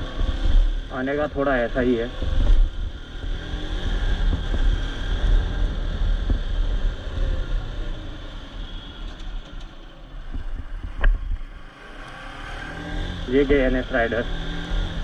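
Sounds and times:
motorcycle engine running: 0:00.0 - 0:15.0
wind rumble on microphone: 0:02.1 - 0:08.2, 0:10.2 - 0:11.6.

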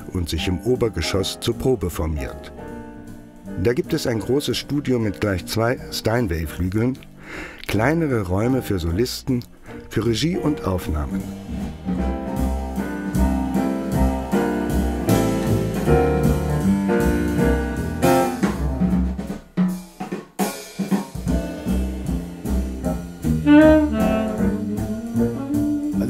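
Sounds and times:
drum kit: 0:00.0 - 0:26.0
piano: 0:00.0 - 0:26.0
double bass: 0:07.8 - 0:19.0, 0:21.2 - 0:26.0
tenor saxophone: 0:23.2 - 0:26.0.

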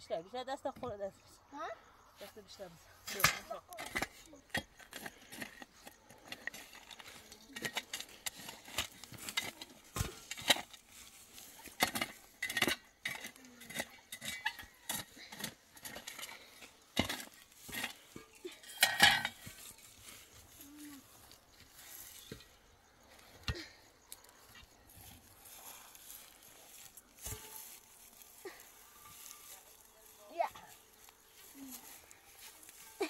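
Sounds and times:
hard objects clinking and knocking: 0:11.7 - 0:19.7.

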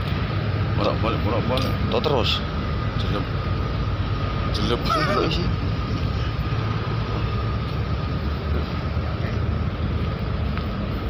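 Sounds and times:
machinery rumbling drone: 0:00.0 - 0:11.0
thin steady whine: 0:00.0 - 0:11.0.

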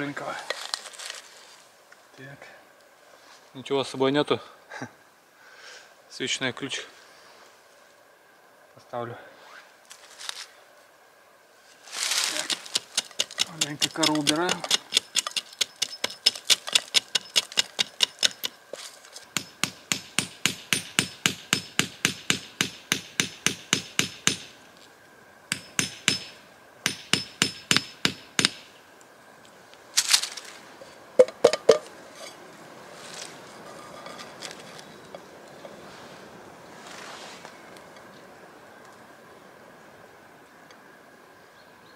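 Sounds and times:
tool tapping on birch trunk: 0:12.5 - 0:18.6, 0:31.2 - 0:31.9.

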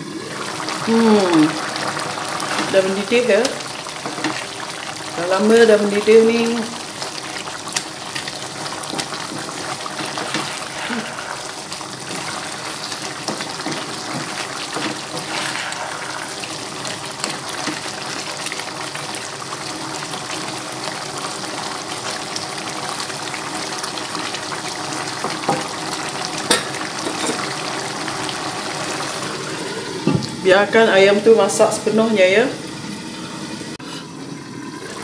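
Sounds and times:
curry bubbling in a pan: 0:00.0 - 0:30.5
wooden spatula stirring: 0:01.7 - 0:05.3, 0:07.1 - 0:18.6.

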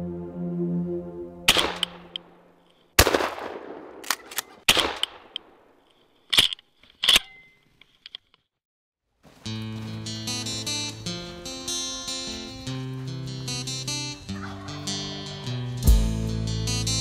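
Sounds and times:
music: 0:00.0 - 0:01.5, 0:09.4 - 0:17.0
shotgun shots echoing: 0:01.5 - 0:02.4, 0:03.0 - 0:05.8.

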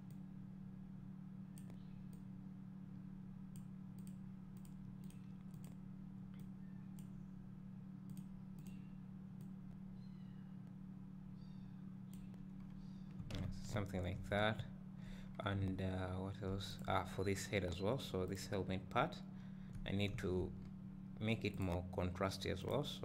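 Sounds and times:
low electrical hum: 0:00.0 - 0:23.0
computer mouse clicking: 0:01.6 - 0:02.2, 0:03.5 - 0:07.1, 0:08.1 - 0:09.5, 0:12.1 - 0:12.8.

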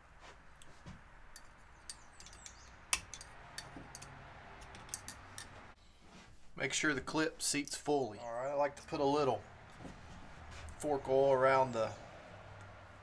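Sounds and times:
light metallic clicks and ticks: 0:00.6 - 0:05.6, 0:12.6 - 0:12.8.

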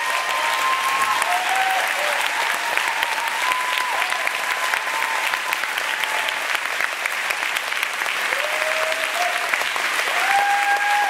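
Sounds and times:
audience applauding: 0:00.0 - 0:11.0.

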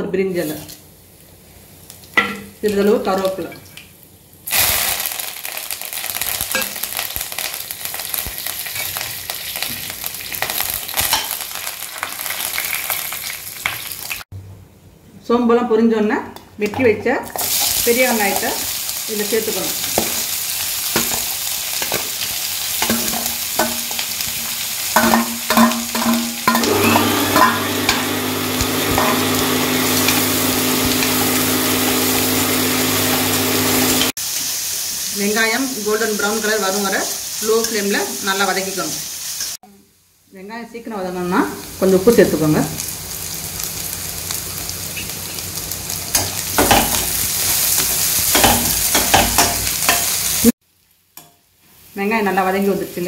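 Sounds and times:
onions sizzling in hot oil: 0:00.3 - 0:14.3, 0:17.2 - 0:53.0
steel spoon scraping and tapping: 0:25.0 - 0:29.4.

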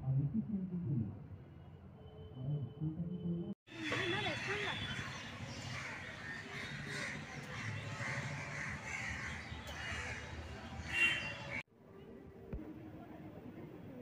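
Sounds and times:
low street hum: 0:00.0 - 0:14.0
crows cawing: 0:03.8 - 0:11.6.

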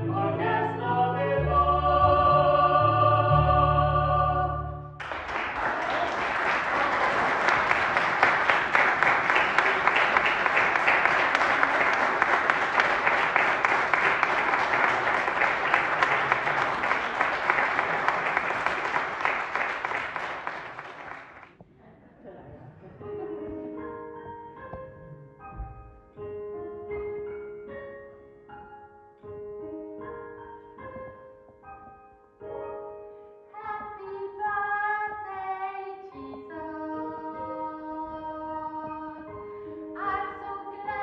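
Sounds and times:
singers holding a chord: 0:00.0 - 0:04.8
audience applause: 0:05.0 - 0:21.5.

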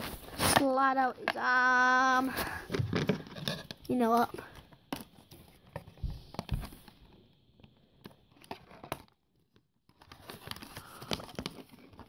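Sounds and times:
cardboard packaging rustling: 0:09.9 - 0:12.0.

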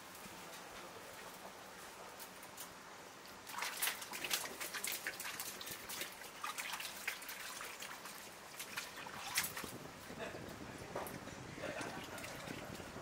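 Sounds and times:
water splashing in a bowl: 0:03.4 - 0:10.0, 0:11.0 - 0:13.0.

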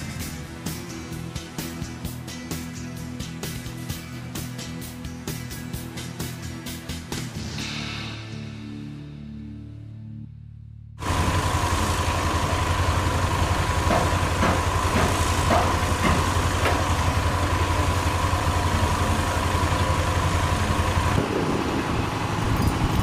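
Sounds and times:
engine idling: 0:11.0 - 0:23.0.

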